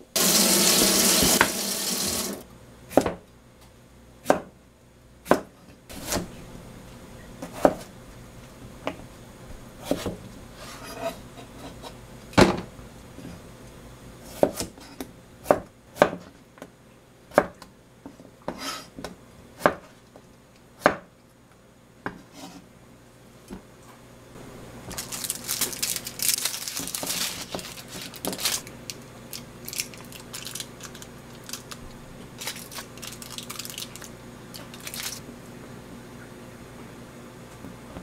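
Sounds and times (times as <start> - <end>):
knife chopping on plastic board: 4.2 - 4.5, 14.3 - 14.8, 15.4 - 16.3.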